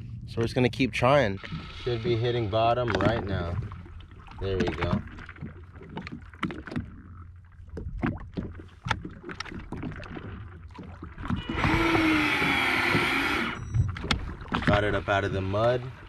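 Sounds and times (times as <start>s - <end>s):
water slapping against hull: 0.0s - 16.0s
fishing reel whining: 11.4s - 13.8s.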